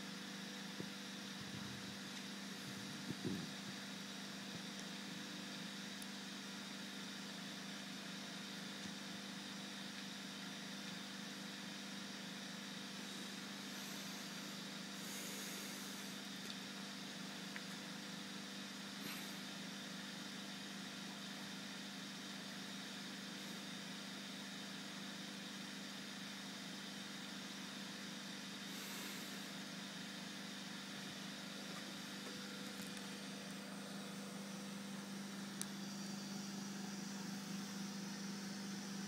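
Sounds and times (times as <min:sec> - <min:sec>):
motor humming with hiss: 0:00.0 - 0:39.0.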